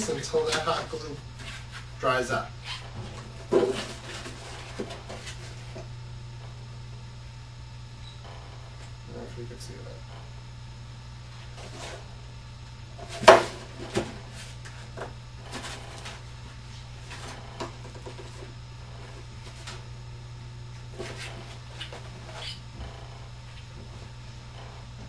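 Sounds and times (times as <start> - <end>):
steady low hum: 0.0 - 25.0
cardboard knocking and rustling: 3.0 - 5.4.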